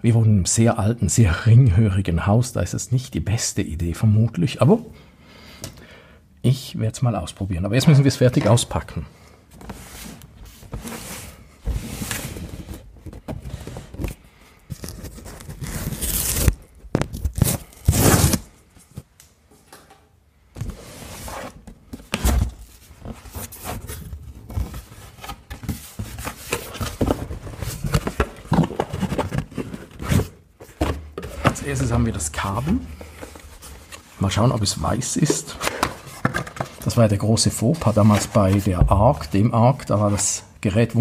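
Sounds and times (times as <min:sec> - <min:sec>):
cardboard scraping and rustling: 0:09.5 - 0:18.5, 0:20.6 - 0:37.0.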